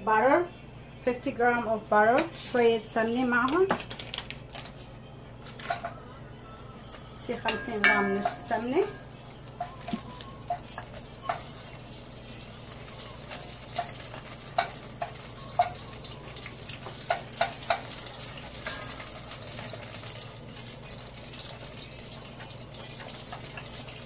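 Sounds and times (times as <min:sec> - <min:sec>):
butter sizzling in a pot: 0:06.6 - 0:24.0
wooden spoon knocking on pot: 0:07.4 - 0:11.5.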